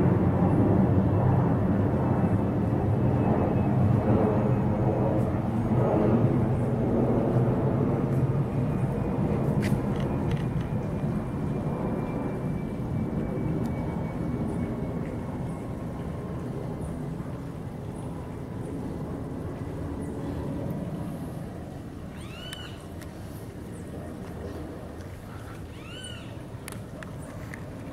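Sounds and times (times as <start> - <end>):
airplane flying overhead: 0.0 - 27.9.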